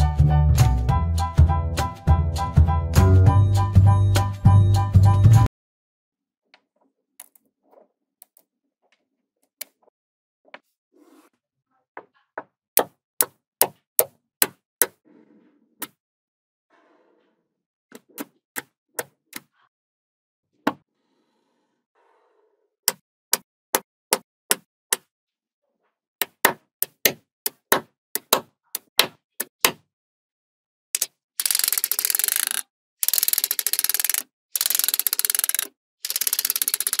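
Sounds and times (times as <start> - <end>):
magnetic balls clicking together: 31.0 - 37.0.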